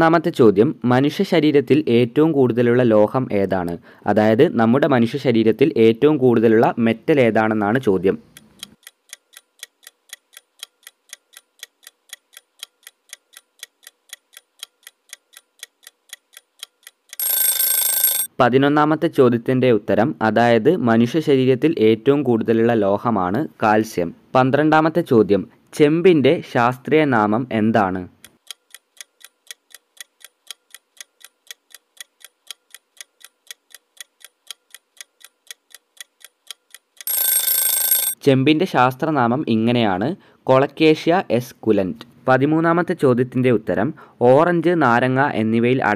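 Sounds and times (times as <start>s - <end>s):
clock ticking: 7.6s - 18.3s, 28.2s - 38.2s
loud alarm ring: 17.2s - 18.3s, 37.1s - 38.2s.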